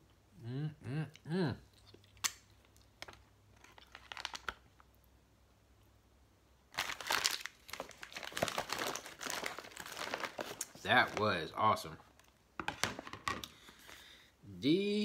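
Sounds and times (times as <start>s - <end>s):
plastic packaging crinkling: 3.0s - 4.9s, 6.7s - 14.0s.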